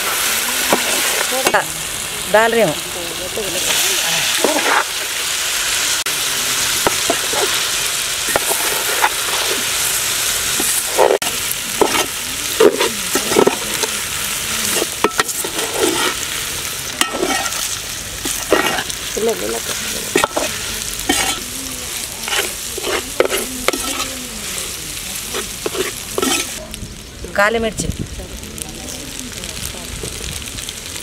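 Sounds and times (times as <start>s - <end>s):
steady sizzle: 0.0s - 31.0s
ladle scraping metal pot: 8.3s - 9.7s, 14.6s - 16.2s, 17.0s - 19.0s, 19.6s - 21.5s, 22.2s - 24.1s, 25.3s - 26.6s.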